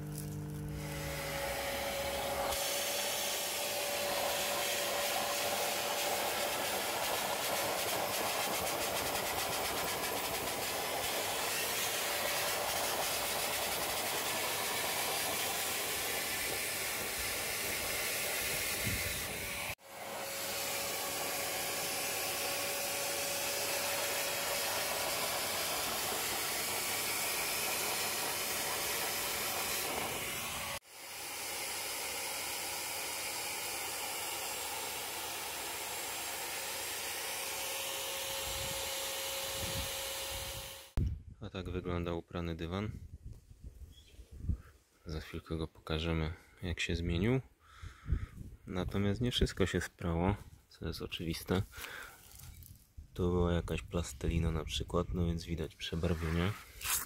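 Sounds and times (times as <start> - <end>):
vacuum motor whine: 0.0 - 8.9, 9.9 - 41.0.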